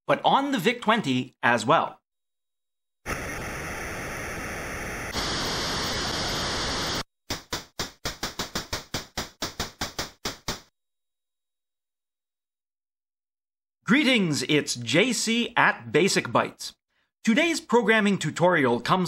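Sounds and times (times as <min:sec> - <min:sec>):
electronic static hiss: 0:03.1 - 0:07.1.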